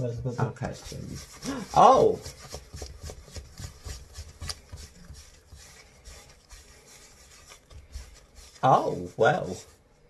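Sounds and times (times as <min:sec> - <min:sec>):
hands rolling dough on worktop: 0:00.0 - 0:09.8.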